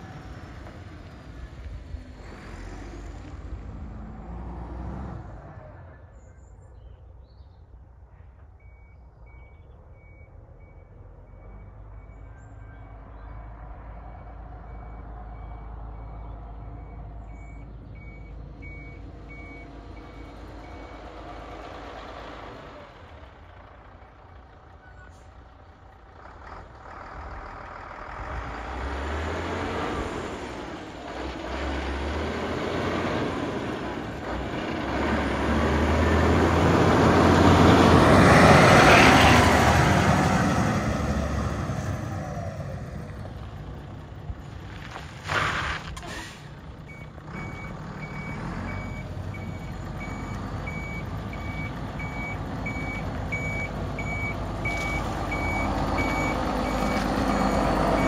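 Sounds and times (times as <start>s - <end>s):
diesel truck passing by: 0.0s - 58.0s
reversing alarm beeping: 46.9s - 58.0s.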